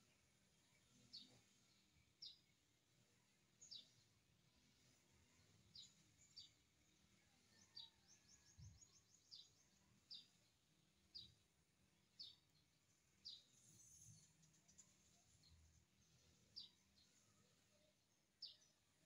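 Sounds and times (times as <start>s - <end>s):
faint bird chirps: 7.2s - 10.4s, 13.2s - 19.0s.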